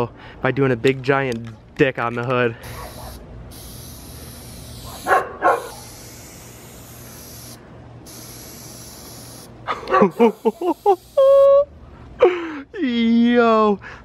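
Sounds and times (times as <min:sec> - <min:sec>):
aerosol can spraying: 0:02.6 - 0:11.5
dog barking: 0:02.7 - 0:03.2, 0:04.9 - 0:05.8, 0:09.7 - 0:10.2.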